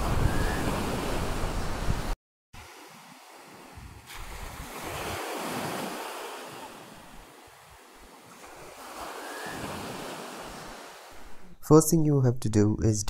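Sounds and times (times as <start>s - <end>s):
surf washing onto beach: 0.0s - 11.4s.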